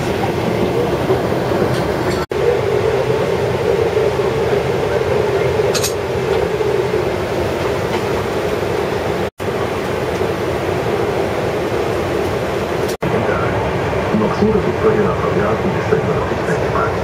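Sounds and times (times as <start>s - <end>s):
airliner cabin rumble and hiss: 0.0s - 17.0s.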